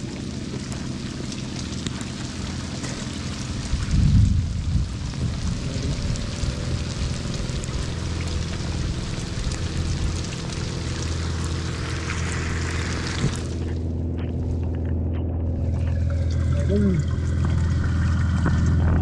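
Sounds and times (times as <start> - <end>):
rain hissing on the sea: 0.0 - 13.8
boat engine running: 0.0 - 19.0.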